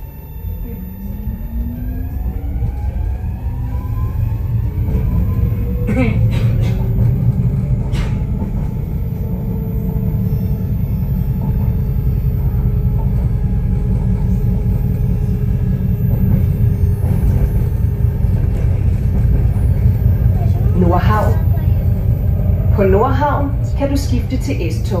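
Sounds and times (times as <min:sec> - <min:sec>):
faint whine: 0:00.0 - 0:03.0
train rumbling along track: 0:00.0 - 0:25.0.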